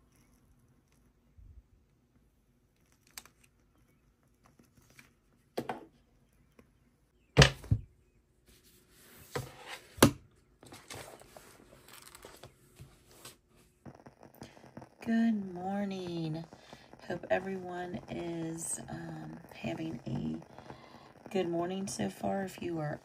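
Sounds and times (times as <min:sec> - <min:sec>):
books knocking on wooden desk: 0:07.4 - 0:07.8
thin pages rustling: 0:10.6 - 0:13.4.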